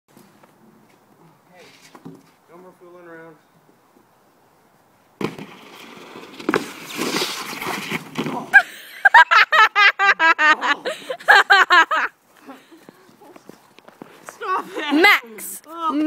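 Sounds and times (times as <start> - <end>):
skimboard scraping icy snow: 5.2 - 8.5
knocks of rider falling: 5.2 - 8.6
loud laughter: 8.5 - 12.1.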